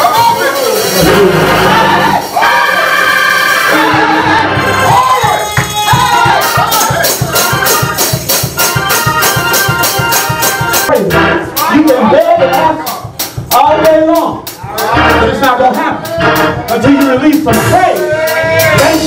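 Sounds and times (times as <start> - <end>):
church praise music: 0.0 - 19.0
drum kit: 0.0 - 19.0
keyboard organ: 0.0 - 19.0
quick percussion strikes: 3.8 - 19.0
man speaking over microphone: 10.9 - 14.4, 15.0 - 18.1.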